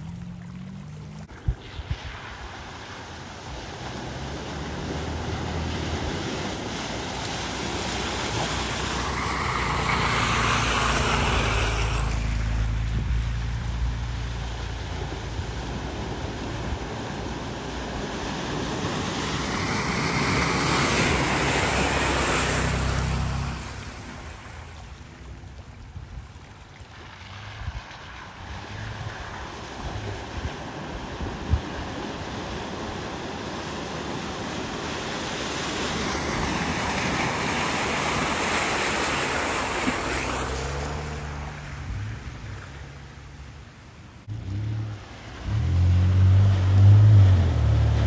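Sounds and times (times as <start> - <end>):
water sloshing and splashing: 0.0 - 43.7
truck engines running: 3.2 - 26.1.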